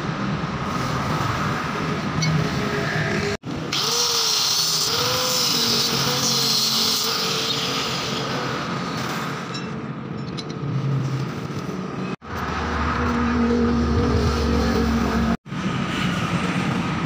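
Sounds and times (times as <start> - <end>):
angle grinder cutting steel: 3.6 - 9.7.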